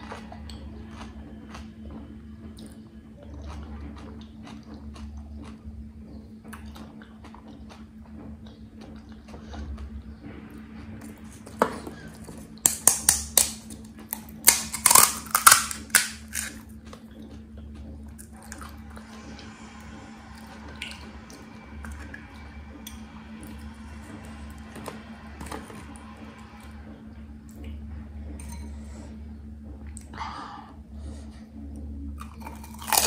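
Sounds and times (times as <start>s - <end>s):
fried shells crunching: 11.3s - 16.7s, 32.2s - 33.0s.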